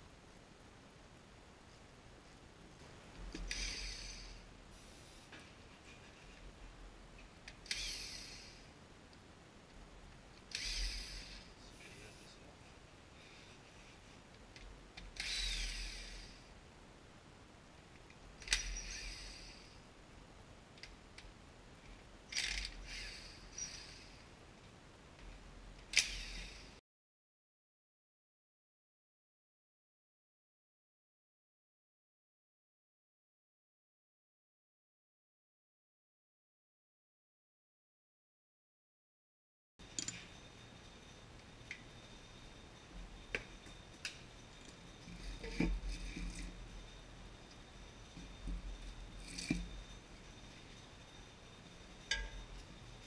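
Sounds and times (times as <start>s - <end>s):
metal tools clicking on engine: 39.8s - 40.6s, 52.0s - 53.0s
metal tools clinking: 39.8s - 53.0s.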